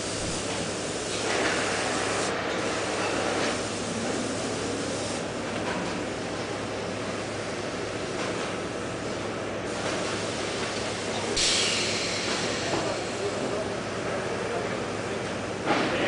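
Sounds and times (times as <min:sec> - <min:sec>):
factory machinery hissing: 0:00.0 - 0:16.0.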